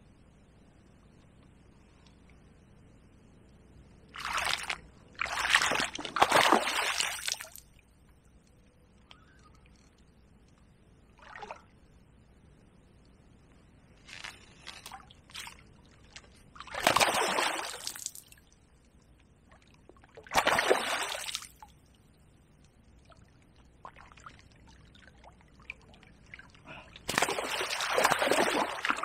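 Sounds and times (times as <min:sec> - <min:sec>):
fish splashing at water surface: 0:27.1 - 0:29.0.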